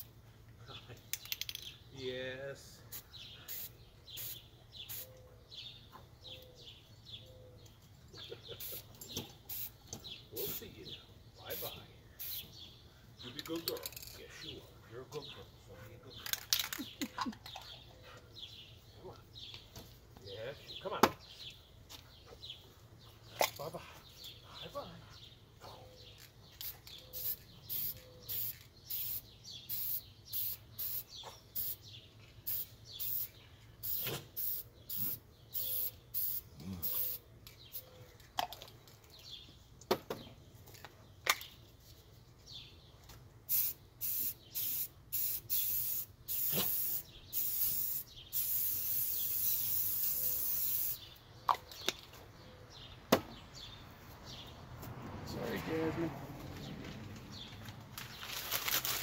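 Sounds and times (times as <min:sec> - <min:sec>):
spray cans hissing: 0:02.9 - 0:05.1, 0:08.5 - 0:10.8, 0:11.5 - 0:12.7, 0:26.4 - 0:37.8, 0:43.5 - 0:51.2.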